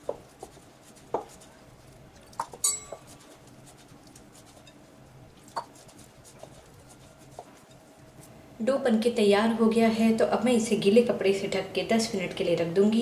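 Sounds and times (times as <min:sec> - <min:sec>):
fingers clinking on glass bowl: 0:02.2 - 0:03.2.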